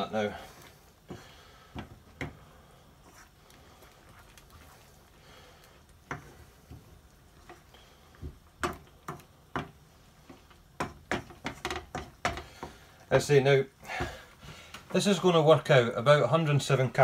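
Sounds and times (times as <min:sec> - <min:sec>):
curry simmering: 0:00.0 - 0:15.0
spatula tapping and scraping pan: 0:06.0 - 0:12.9.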